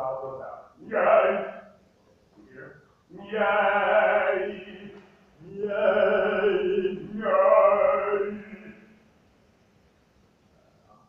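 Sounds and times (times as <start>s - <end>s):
man singing sustained vowels: 0.8s - 1.8s, 3.1s - 9.1s.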